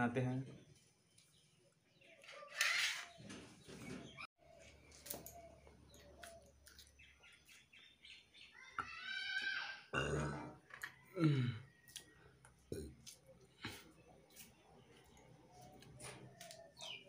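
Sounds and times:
high chirping calls: 15.0 - 17.0.

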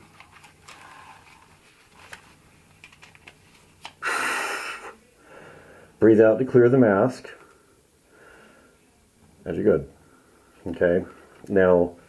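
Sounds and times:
breath through a mask: 4.0 - 6.0.

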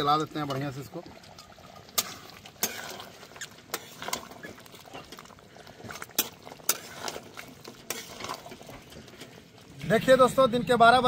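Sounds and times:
spatula scraping metal pan: 2.0 - 9.4.

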